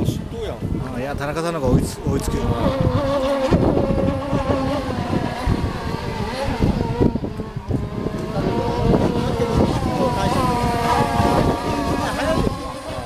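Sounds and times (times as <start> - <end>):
rc boat engines whining: 1.1 - 13.0.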